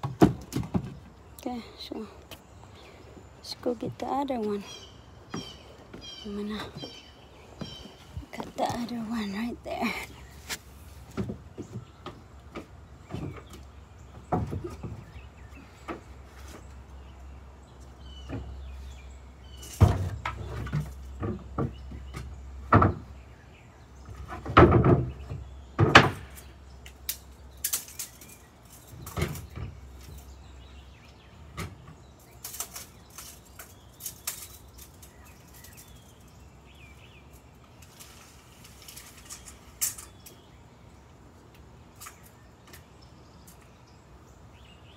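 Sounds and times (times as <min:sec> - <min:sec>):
wooden boards knocking on deck: 0:00.0 - 0:01.0, 0:24.3 - 0:26.3
birds chirping faintly: 0:00.0 - 0:44.9.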